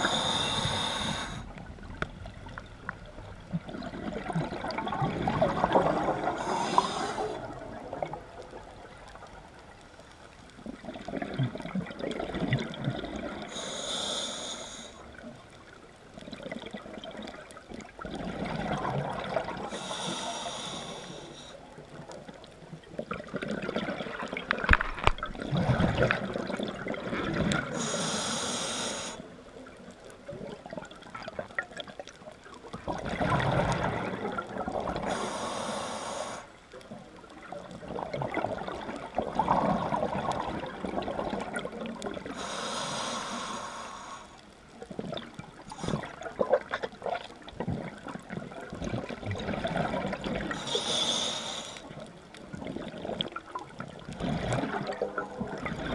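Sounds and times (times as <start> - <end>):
scuba regulator breathing hiss: 0.0 - 1.5, 6.2 - 7.5, 13.5 - 15.1, 19.7 - 21.6, 27.7 - 29.3, 35.0 - 36.6, 42.3 - 44.5, 50.6 - 52.0
gurgling exhaled bubbles: 0.0 - 9.3, 10.7 - 13.6, 16.2 - 19.8, 23.0 - 27.8, 32.7 - 35.5, 36.8 - 42.4, 44.9 - 50.9, 52.0 - 55.9.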